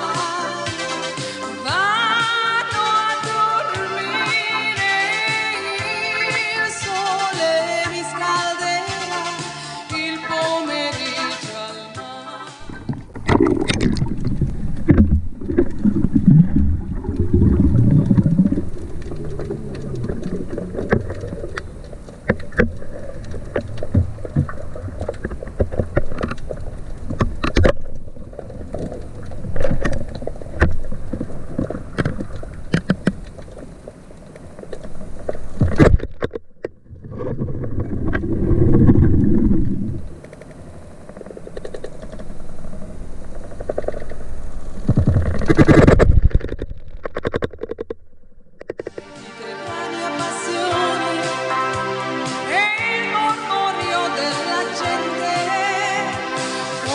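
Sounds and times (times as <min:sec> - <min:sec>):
water splashing and sloshing: 0:12.6 - 0:49.3
sharp knocks and clicks: 0:44.9 - 0:49.0.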